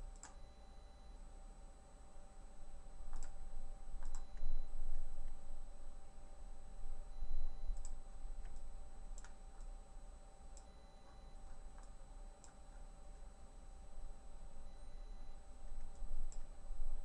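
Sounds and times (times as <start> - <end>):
steady low hum: 0.0 - 17.0
computer mouse clicks: 0.1 - 0.4, 3.1 - 3.4, 4.0 - 4.4, 7.8 - 9.7, 11.5 - 13.3, 15.8 - 16.5.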